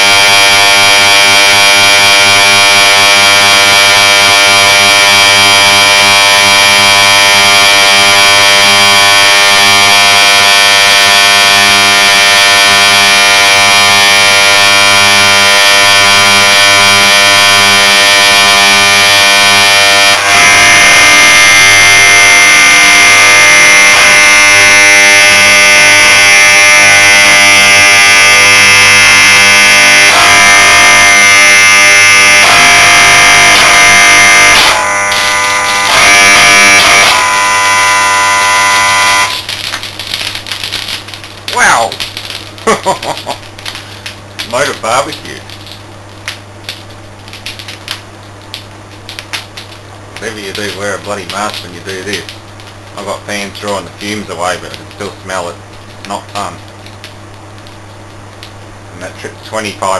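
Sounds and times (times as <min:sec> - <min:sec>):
electric motor buzzing: 0:34.4 - 0:39.4.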